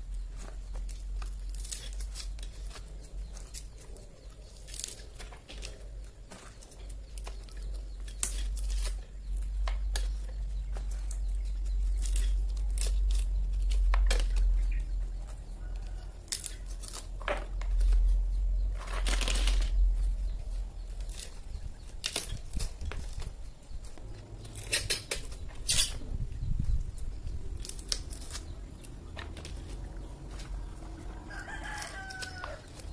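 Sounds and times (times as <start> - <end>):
nut husker cracking and clicking: 0.7 - 18.1, 20.9 - 23.3, 27.5 - 32.9.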